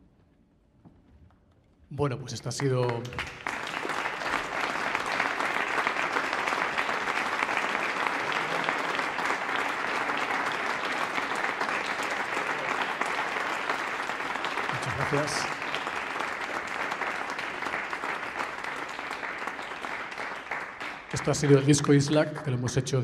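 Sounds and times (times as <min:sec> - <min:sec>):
audience applauding: 0:02.4 - 0:22.6
person announcing: 0:14.7 - 0:15.6, 0:21.1 - 0:23.0.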